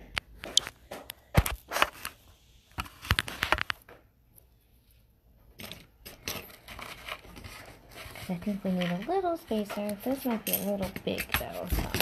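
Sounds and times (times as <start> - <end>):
rustling: 4.8 - 12.0.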